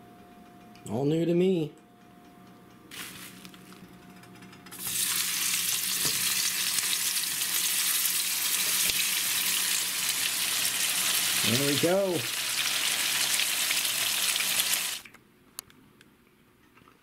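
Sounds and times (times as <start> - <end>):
steak sizzling in a pan: 4.8 - 15.0.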